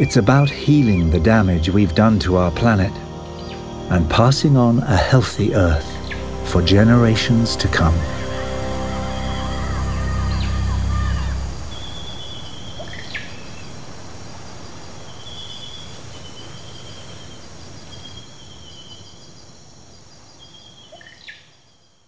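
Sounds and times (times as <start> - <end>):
music: 0.0 - 12.3
birds trilling: 0.0 - 13.3
insect hum: 0.0 - 22.0.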